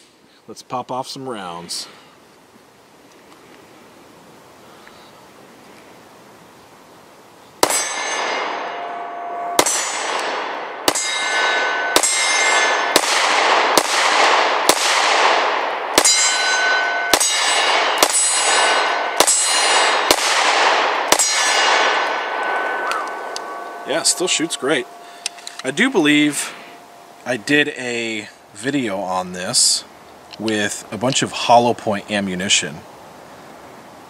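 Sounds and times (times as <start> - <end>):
pistol shots echoing: 7.6 - 26.4.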